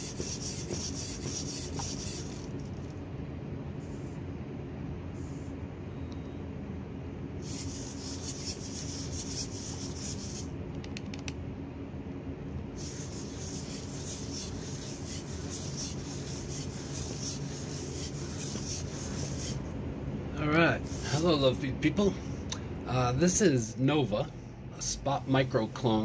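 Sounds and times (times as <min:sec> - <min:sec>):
servo motors whirring: 0:00.0 - 0:02.9, 0:07.4 - 0:10.5, 0:12.8 - 0:19.7, 0:20.8 - 0:21.3
steady low hum: 0:00.0 - 0:26.0.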